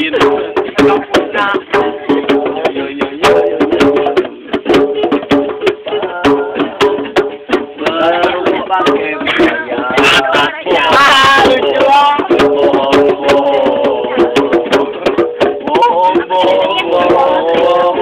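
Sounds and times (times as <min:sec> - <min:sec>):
sharp percussive knocks: 0:00.0 - 0:18.0
voices singing along: 0:00.0 - 0:18.0.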